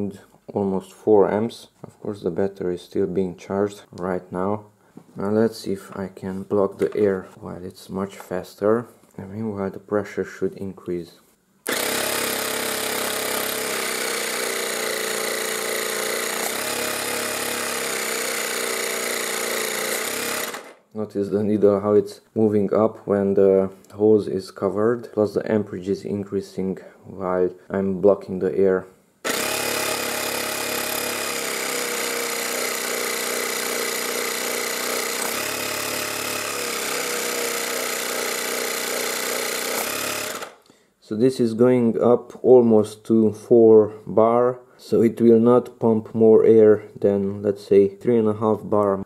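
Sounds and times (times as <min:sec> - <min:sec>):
air compressor buzzing drone: 0:11.7 - 0:20.8, 0:29.3 - 0:40.5.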